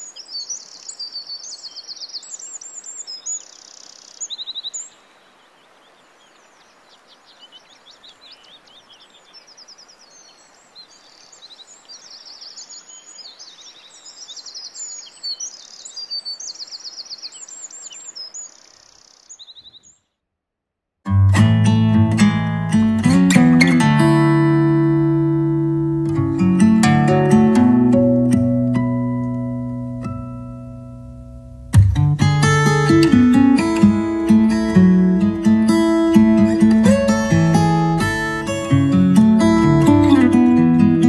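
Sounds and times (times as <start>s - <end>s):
faint steady hiss: 0.0s - 20.0s, 23.7s - 41.0s
songbirds chirping and trilling: 0.0s - 20.2s, 23.7s - 41.0s.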